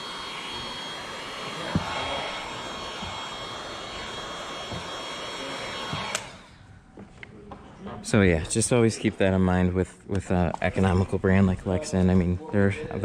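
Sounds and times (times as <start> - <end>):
heat gun blowing: 0.0 - 6.7.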